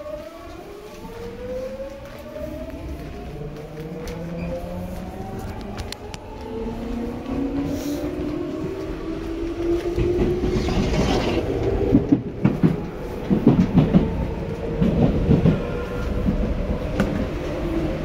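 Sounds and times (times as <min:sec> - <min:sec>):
wheels clacking over rail joints: 0:09.6 - 0:14.2.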